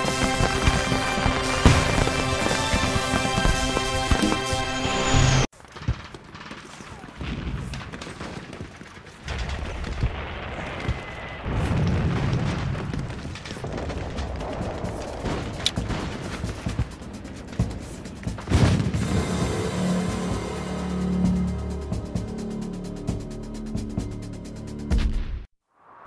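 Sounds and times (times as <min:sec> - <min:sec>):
gunfire: 0:00.0 - 0:04.5
background music: 0:00.0 - 0:05.5, 0:15.8 - 0:25.5
rumbling explosions: 0:00.0 - 0:23.2.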